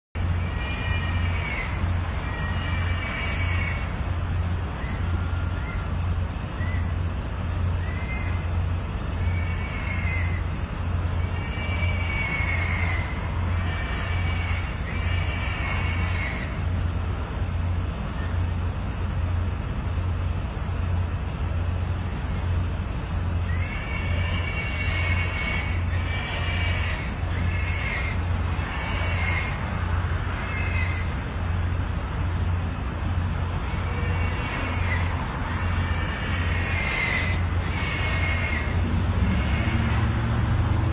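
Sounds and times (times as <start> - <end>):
steady low hum: 0.1 - 40.9
pigs squealing: 0.2 - 6.9, 7.6 - 16.6, 23.4 - 31.2, 33.6 - 40.4.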